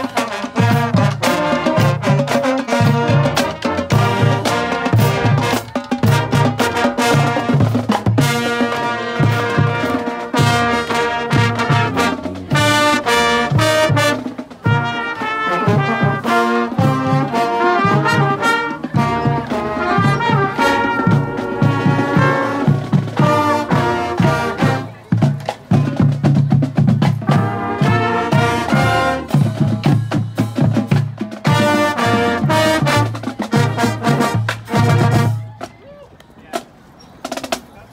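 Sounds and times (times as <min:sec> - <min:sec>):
bass and snare drums beat: 0:00.0 - 0:37.9
brass playing sustained chords: 0:08.2 - 0:24.9, 0:27.3 - 0:29.3.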